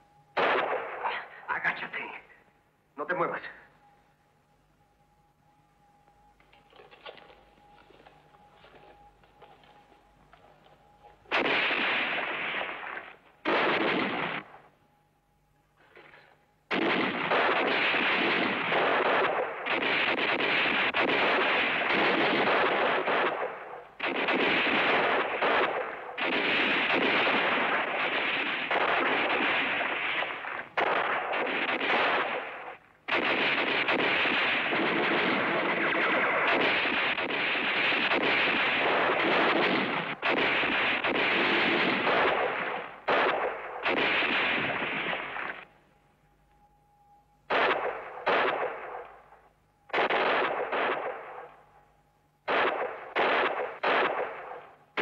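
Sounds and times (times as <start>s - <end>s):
rifle and machine-gun fire: 0.4s - 1.3s, 11.3s - 14.7s, 16.1s - 45.7s, 47.5s - 49.3s, 49.9s - 51.6s, 52.4s - 55.0s.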